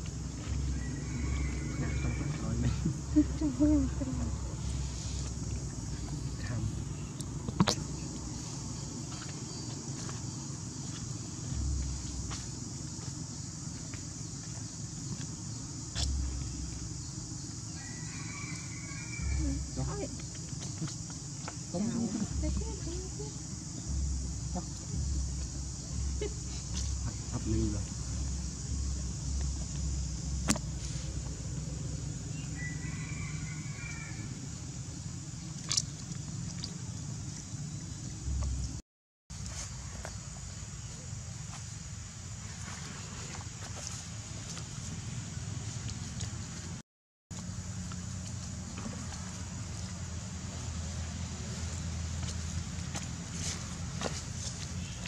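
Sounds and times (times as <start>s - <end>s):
faint high animal call: 0.7s - 2.8s, 17.8s - 20.1s
low rumble: 9.8s - 17.5s, 19.2s - 32.6s, 34.2s - 38.8s
high-pitched insect buzzing: 10.7s - 34.4s.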